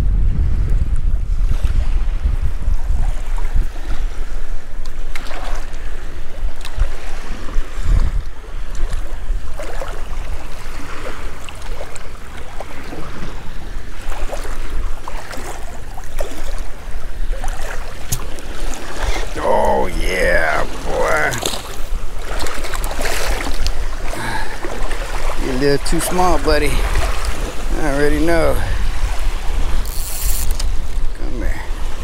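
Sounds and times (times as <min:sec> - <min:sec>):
steady low rumble: 0:00.0 - 0:03.7
wind buffeting microphone: 0:00.0 - 0:32.0
small waves lapping: 0:01.6 - 0:32.0
light clicks and splashes: 0:06.5 - 0:07.0, 0:17.4 - 0:19.4, 0:21.1 - 0:26.1.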